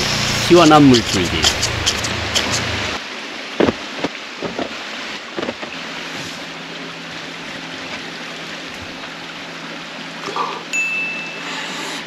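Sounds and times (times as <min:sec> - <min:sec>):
shower head spraying water: 0:00.0 - 0:03.0
low steady pump hum: 0:00.0 - 0:12.0.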